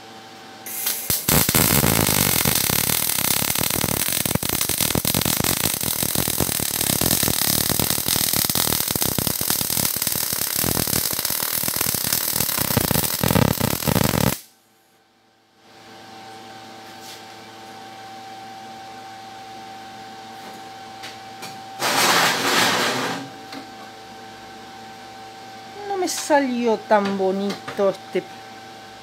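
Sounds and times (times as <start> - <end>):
welding arc crackling: 0.7 - 14.5.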